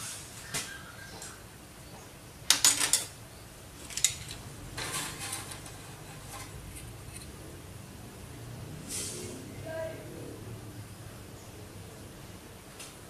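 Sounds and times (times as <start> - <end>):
metal tools clinking and scraping: 2.5 - 3.2, 3.8 - 7.3.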